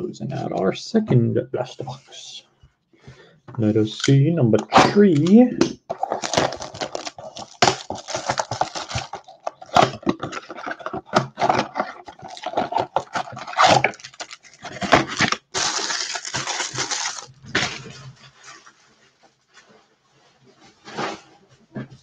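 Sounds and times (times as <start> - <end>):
plastic wrap tearing and crinkling: 4.8 - 18.3
foil packs rustling: 5.9 - 18.7.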